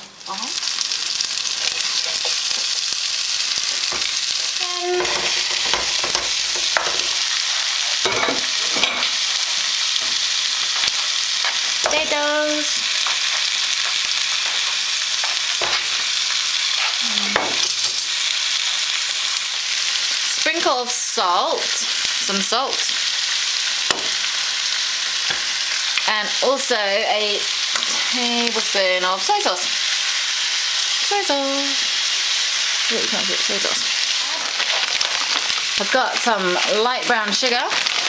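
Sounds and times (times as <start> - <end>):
paste sizzling in hot oil: 0.0 - 38.0
wooden spoon scraping a pan: 1.6 - 2.8, 3.6 - 11.8, 27.8 - 28.2, 34.2 - 38.0
sharp knocks in a pan: 5.0 - 7.2, 13.0 - 16.0, 23.9 - 24.2.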